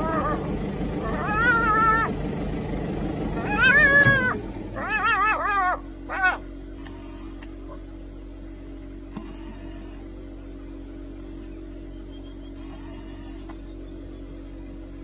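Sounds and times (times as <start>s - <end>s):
animal whining calls: 0.0s - 2.2s, 3.3s - 7.8s, 9.2s - 10.1s, 11.9s - 14.4s.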